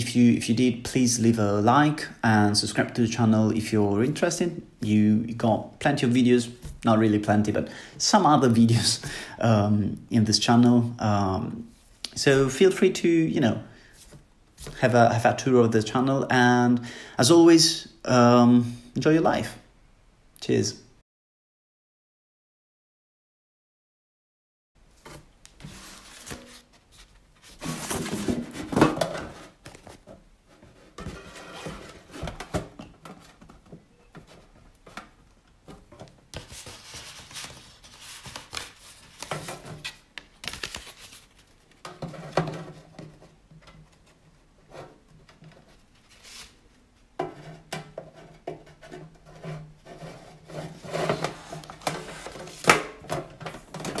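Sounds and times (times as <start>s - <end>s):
paper rustling: 25.0s - 33.6s, 35.7s - 42.6s, 45.6s - 46.6s, 50.5s - 52.9s.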